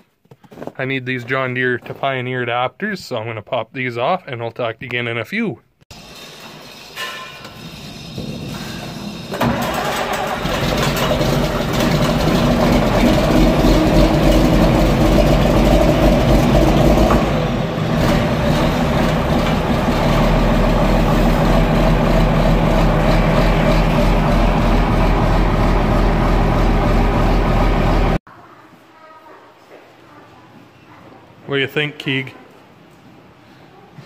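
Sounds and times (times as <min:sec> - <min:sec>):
tractor diesel engine starting: 0:05.9 - 0:28.2.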